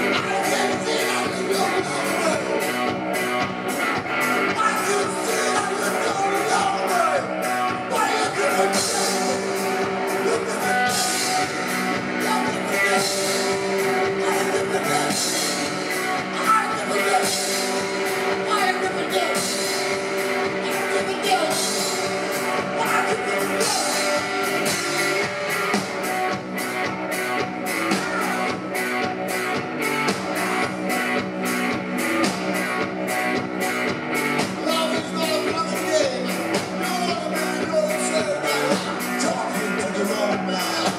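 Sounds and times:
man singing: 0.0s - 2.9s, 4.4s - 24.6s, 34.4s - 40.9s
drum kit with cymbal: 0.0s - 40.9s
electric guitar: 0.0s - 40.9s.

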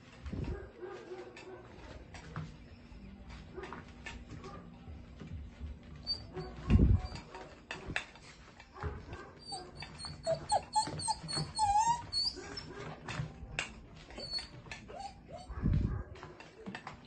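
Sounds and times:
puppy whining: 6.0s - 7.6s, 9.3s - 13.1s, 14.0s - 16.0s.

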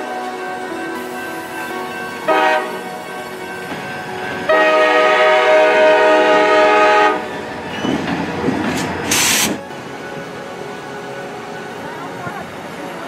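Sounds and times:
train rumbling: 0.0s - 13.0s
locomotive horn blast: 1.8s - 3.1s, 4.5s - 7.3s.

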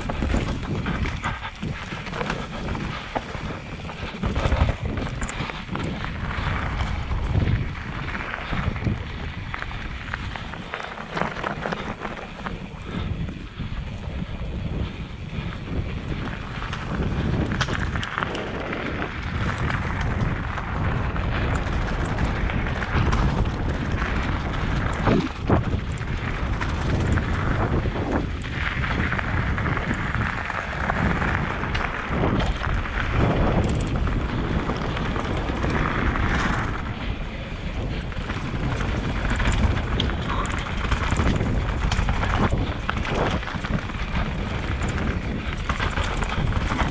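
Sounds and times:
tyres crunching on gravel: 0.0s - 13.0s
bike rattling and knocking: 0.0s - 46.9s
wind noise on microphone: 0.0s - 46.9s.

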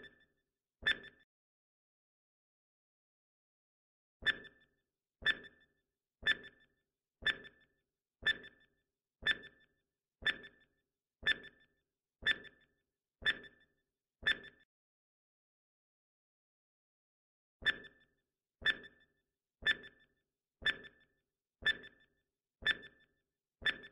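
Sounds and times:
clock-like timer ticking: 4.2s - 4.6s, 5.2s - 12.6s, 13.2s - 14.6s, 17.6s - 18.0s, 18.6s - 19.0s, 19.6s - 21.0s, 21.6s - 23.9s.

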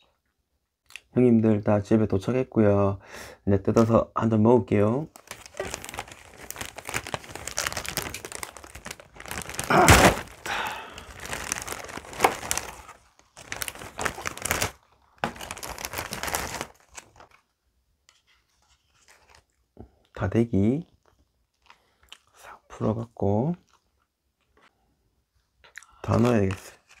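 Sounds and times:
plastic bag crinkling: 5.1s - 17.4s.

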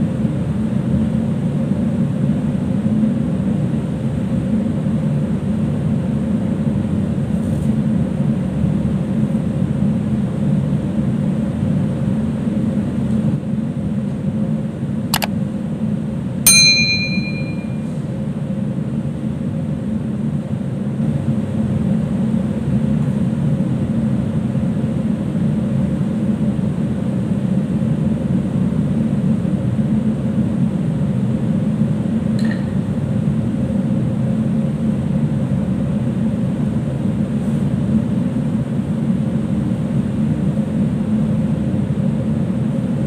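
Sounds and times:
ship machinery drone: 12.1s - 20.1s
bright bell-like ding: 16.5s - 18.0s.

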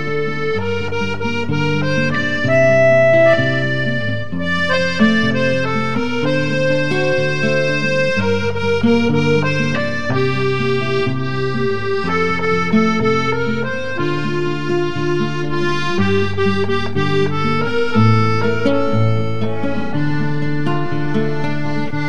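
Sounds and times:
accordion music: 0.0s - 22.0s.

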